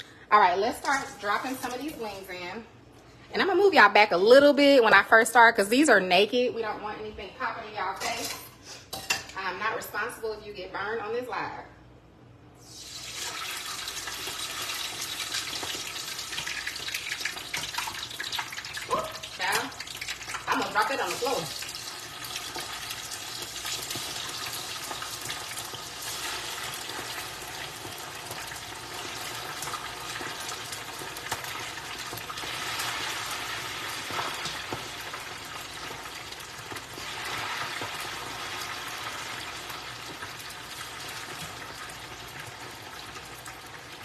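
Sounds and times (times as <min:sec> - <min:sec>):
chicken deep-frying in oil: 0:12.6 - 0:44.0.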